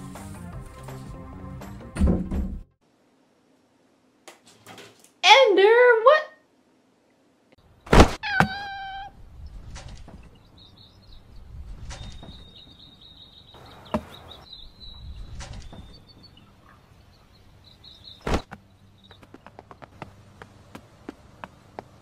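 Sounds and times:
cat meowing: 8.2s - 9.2s
faint high squeaking: 8.2s - 9.2s.

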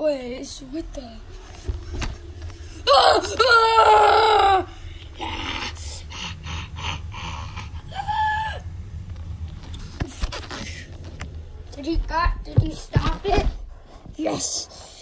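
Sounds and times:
child screaming: 2.8s - 5.8s, 7.8s - 8.7s
child crying: 2.8s - 6.0s, 6.9s - 8.7s
scuffling noises: 9.8s - 14.4s.

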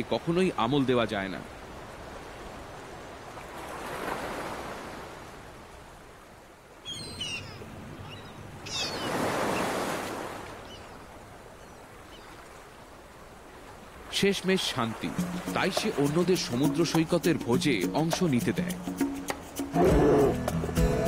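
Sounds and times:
ocean surf washing ashore: 0.0s - 6.9s, 7.6s - 20.7s
high gull calls: 6.9s - 9.8s.

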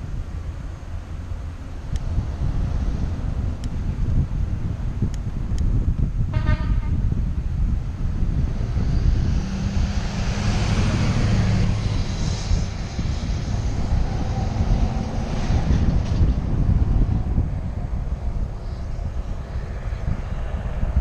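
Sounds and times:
passing vehicle hum and tyre hiss: 0.0s - 21.0s
wind buffeting microphone: 0.0s - 21.0s.

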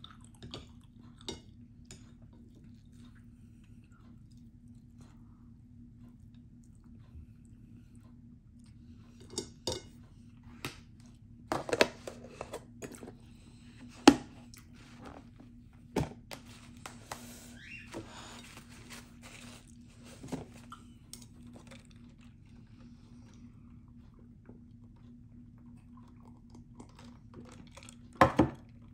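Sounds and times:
faint steady hum: 0.0s - 28.9s.

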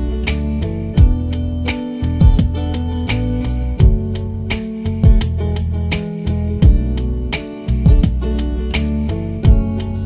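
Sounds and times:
heavy low drum thumps: 0.0s - 3.0s, 3.8s - 5.8s, 6.4s - 8.4s, 9.4s - 10.0s
background music with steady beat: 0.0s - 10.0s.

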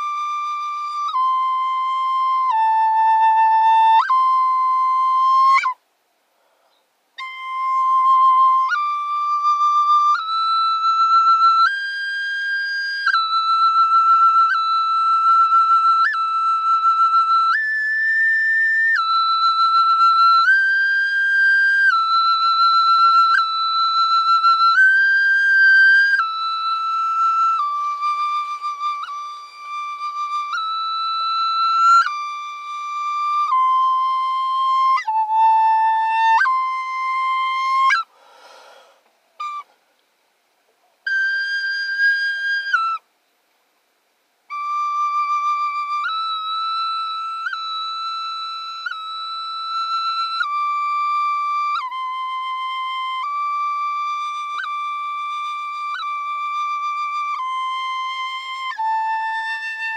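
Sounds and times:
breathy rush of air: 5.9s - 7.1s, 38.0s - 40.0s
flute playing slow high notes: 7.2s - 39.8s, 44.5s - 59.9s.

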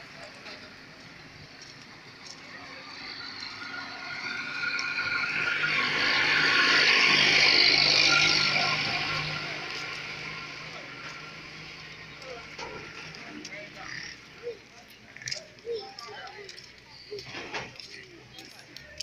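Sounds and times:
vehicle passing at speed: 2.8s - 12.1s.

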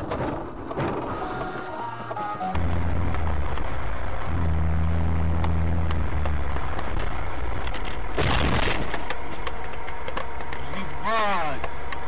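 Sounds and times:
road noise: 0.0s - 12.0s
car crash: 7.7s - 9.1s.

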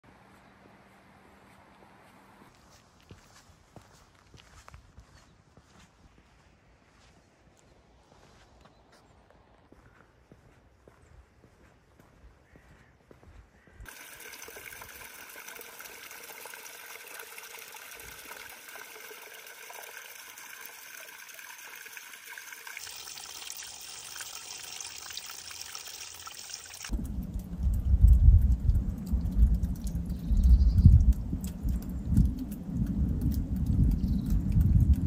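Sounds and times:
water trickling down rock: 13.8s - 35.0s
loud uneven low rumbling: 26.9s - 35.0s.

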